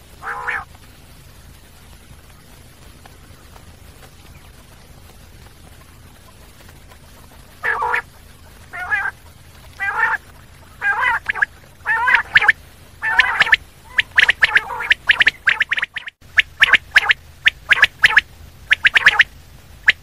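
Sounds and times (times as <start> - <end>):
quail calling: 0.2 - 0.7, 5.6 - 20.0.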